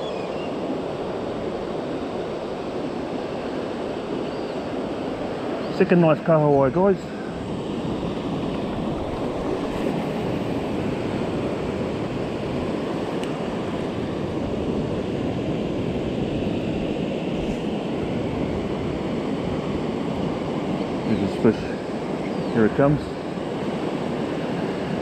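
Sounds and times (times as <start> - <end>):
ocean surf breaking on sand: 0.0 - 25.0
wind on microphone: 6.6 - 25.0.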